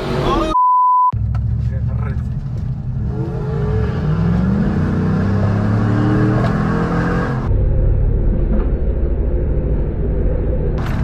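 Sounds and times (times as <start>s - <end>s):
low engine rumble: 1.2s - 3.3s
truck engine accelerating: 1.2s - 11.0s.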